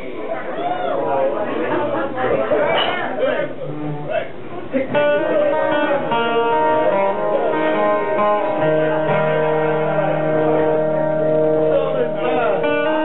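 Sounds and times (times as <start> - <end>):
acoustic guitar chords: 3.2 - 13.0.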